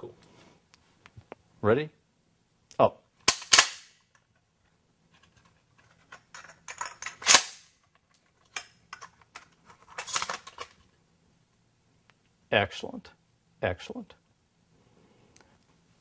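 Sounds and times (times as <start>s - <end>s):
shotgun loading clicks and clacks: 3.2s - 4.3s, 5.2s - 10.8s.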